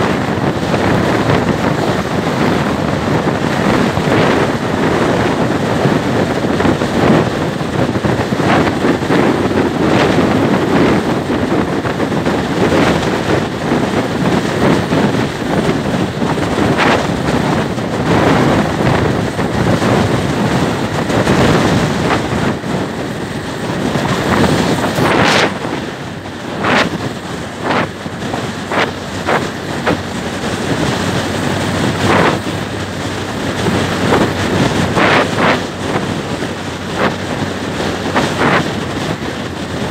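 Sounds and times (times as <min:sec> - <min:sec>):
wind rushing over microphone: 0:00.0 - 0:39.9.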